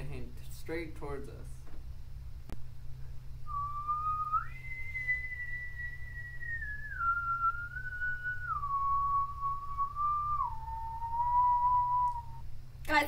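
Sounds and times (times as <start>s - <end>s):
eerie whistle-like tone: 3.4s - 12.5s.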